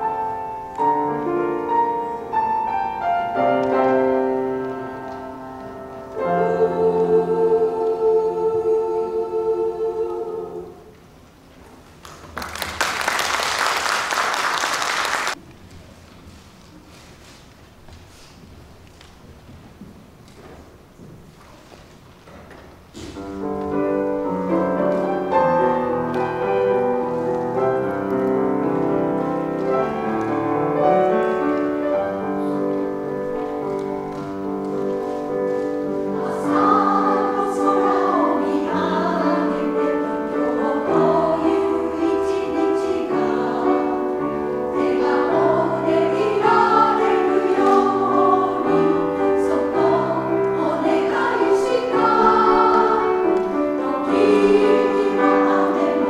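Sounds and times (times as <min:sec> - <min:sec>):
women's choir singing: 0:00.0 - 0:11.1, 0:23.4 - 0:56.0
piano accompaniment: 0:00.0 - 0:15.4, 0:22.8 - 0:56.0.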